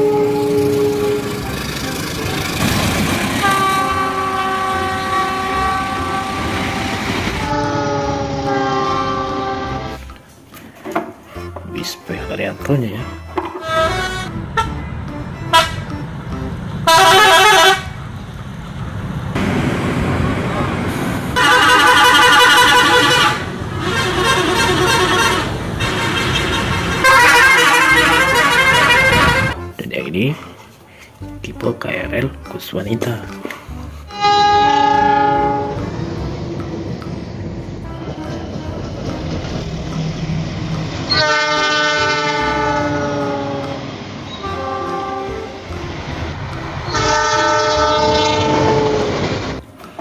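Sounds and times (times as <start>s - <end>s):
locomotive air horn blasts: 0.0s - 1.8s, 3.3s - 10.0s, 13.6s - 14.8s, 15.5s - 15.9s, 16.8s - 18.0s, 21.4s - 29.6s, 34.1s - 36.0s, 41.1s - 45.7s, 46.9s - 49.2s
train rumble and wheel clatter: 0.0s - 50.0s.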